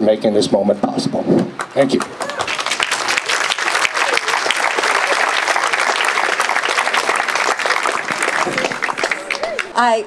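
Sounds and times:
audience applauding: 0:01.6 - 0:09.9.

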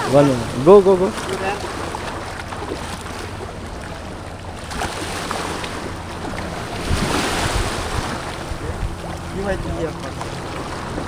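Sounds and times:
watercraft engine running: 0:00.0 - 0:11.0
waves: 0:00.0 - 0:11.0
wind noise on microphone: 0:06.7 - 0:09.6.

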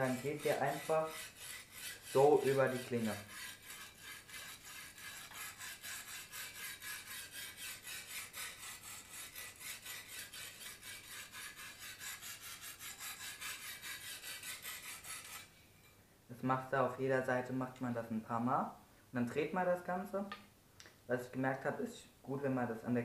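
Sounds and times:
sharpening stone scraping knife: 0:00.0 - 0:16.0.

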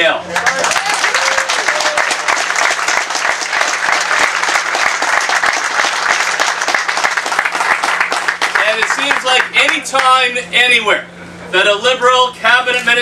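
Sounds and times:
crowd applauding: 0:00.3 - 0:10.1.

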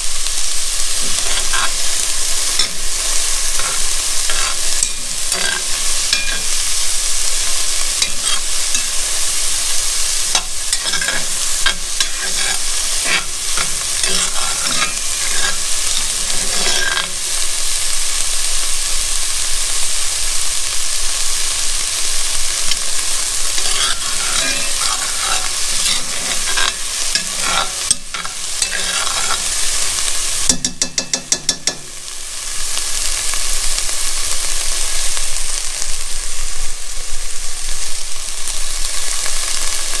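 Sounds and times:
onions sizzling in hot oil: 0:00.0 - 0:40.0
metal spoon scraping pot: 0:01.0 - 0:06.8, 0:08.0 - 0:09.2, 0:10.3 - 0:17.4, 0:23.2 - 0:29.9.

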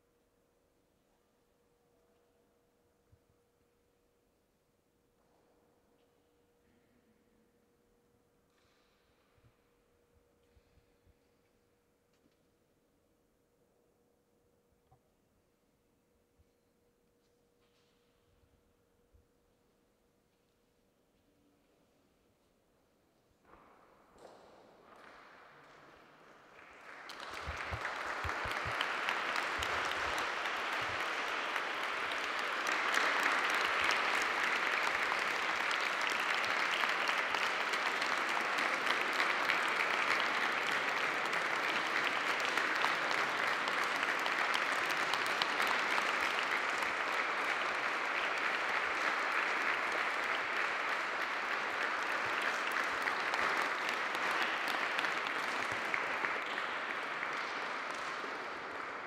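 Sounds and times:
audience applauding: 0:25.0 - 0:59.0.

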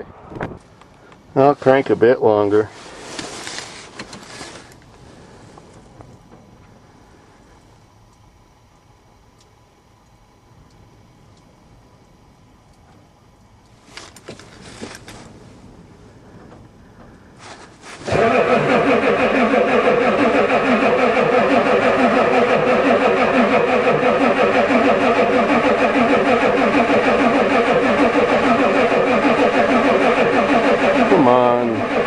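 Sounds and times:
starter motor cranking diesel engine: 0:16.3 - 0:32.0.

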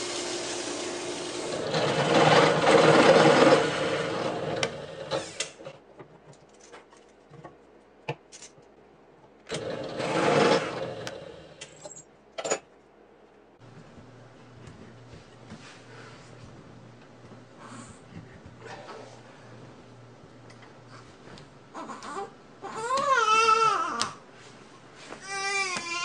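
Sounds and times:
belt sander running: 0:00.0 - 0:05.4
drill press boring into wood: 0:00.0 - 0:05.6, 0:09.5 - 0:11.2.

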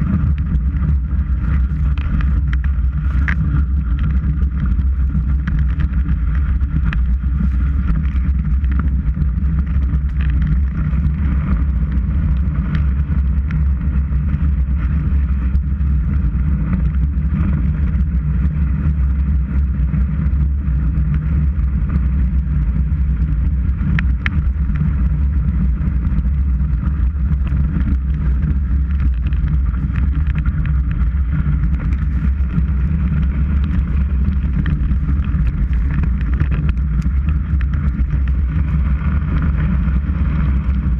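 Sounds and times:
wind and skis on snow: 0:00.0 - 0:40.9.

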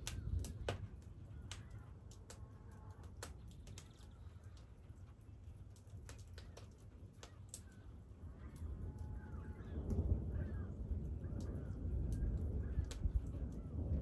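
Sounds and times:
sharp crackles and pops: 0:00.0 - 0:14.0
birds calling: 0:06.1 - 0:14.0.

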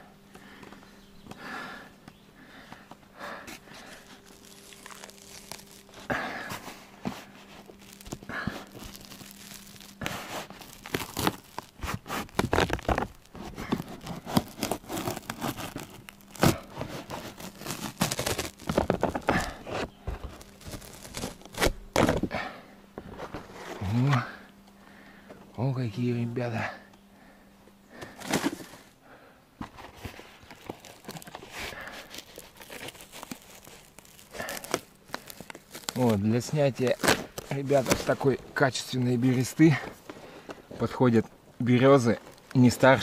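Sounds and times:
bark tearing and crackling: 0:03.8 - 0:22.3, 0:30.0 - 0:38.6, 0:42.0 - 0:43.0.

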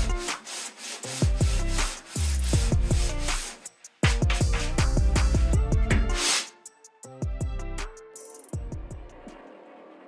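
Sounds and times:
electronic beat music: 0:01.2 - 0:06.2.

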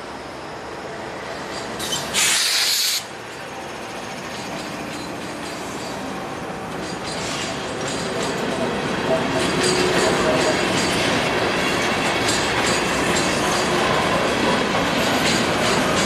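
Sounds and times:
diesel locomotives rumbling past: 0:00.0 - 0:16.0
train wheels on rail: 0:00.0 - 0:16.0
air hiss: 0:01.8 - 0:03.1.

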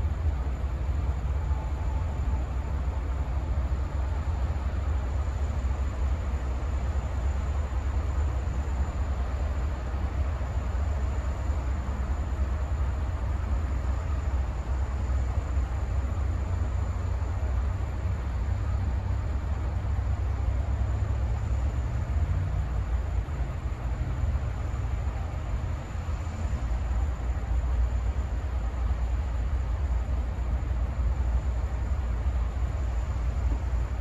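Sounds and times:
faint high-pitched tone: 0:01.2 - 0:03.2.

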